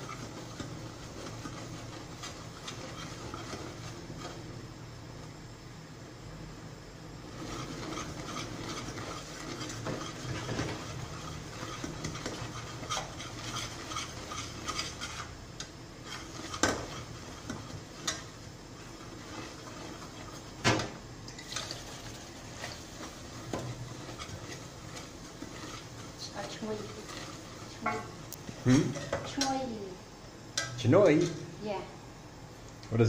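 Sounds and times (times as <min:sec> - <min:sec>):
metal spoon scraping a pot: 0:00.0 - 0:04.5, 0:07.3 - 0:20.5, 0:21.3 - 0:29.5.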